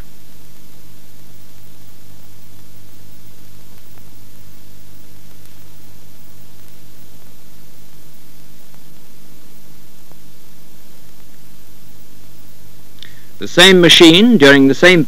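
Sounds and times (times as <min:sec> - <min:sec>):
film soundtrack hiss: 0:00.0 - 0:15.0
low steady hum: 0:00.0 - 0:15.0.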